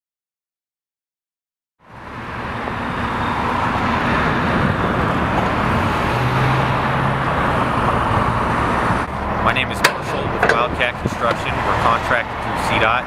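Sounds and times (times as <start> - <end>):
low engine hum: 1.8 - 12.8
highway traffic cars passing: 1.8 - 13.0.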